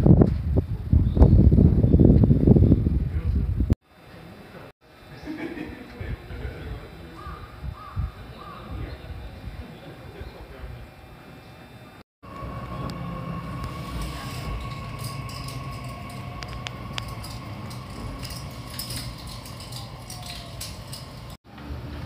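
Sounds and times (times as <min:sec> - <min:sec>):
thin steady whine: 0:03.9 - 0:22.0
train running rumble: 0:12.2 - 0:22.0
wheels clicking and knocking: 0:12.3 - 0:21.7.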